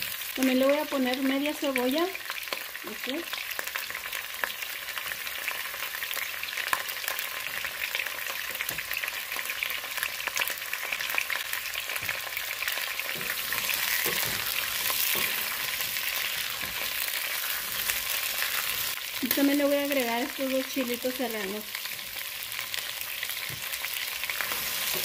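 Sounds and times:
vegetables sizzling in oil: 0.0s - 25.0s.

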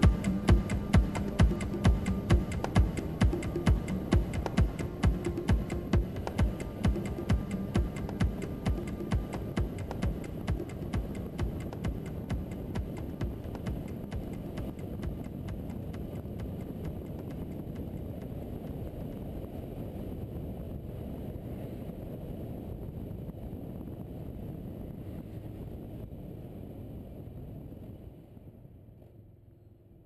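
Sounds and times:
music beat: 0.0s - 17.8s
motorcycle engine and wind rumble: 0.0s - 30.0s.

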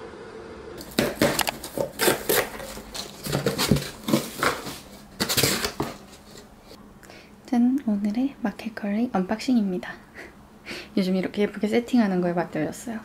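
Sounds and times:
cardboard packaging rustling: 0.8s - 6.8s.

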